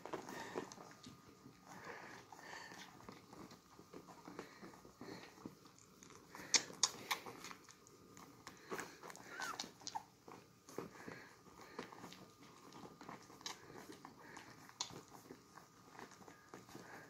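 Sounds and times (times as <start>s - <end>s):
puppies suckling: 0.0s - 17.0s
puppy squeak: 9.2s - 10.1s.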